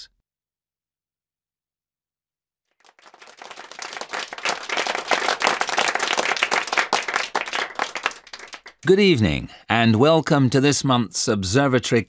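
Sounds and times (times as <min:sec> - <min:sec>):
audience applauding: 0:02.8 - 0:09.0.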